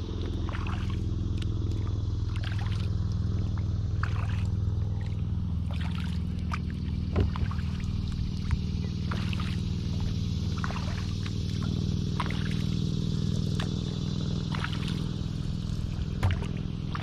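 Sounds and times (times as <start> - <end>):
steady low hum: 0.0 - 17.0
paddle knock: 7.1 - 7.6, 16.2 - 16.6
water dripping off paddle: 16.2 - 17.0.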